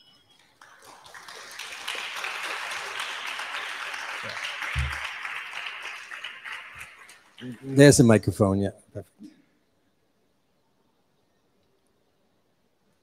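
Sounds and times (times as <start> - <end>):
audience applauding: 0.4 - 8.3.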